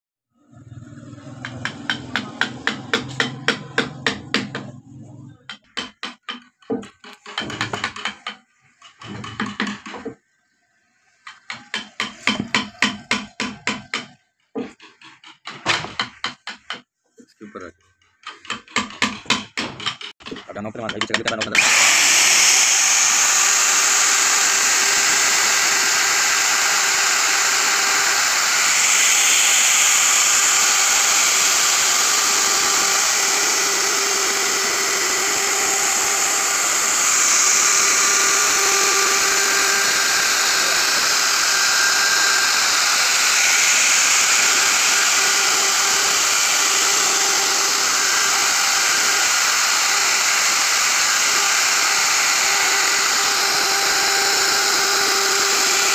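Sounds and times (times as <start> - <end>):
router cutting wood: 0.5 - 10.2, 11.2 - 16.8, 17.5 - 55.9.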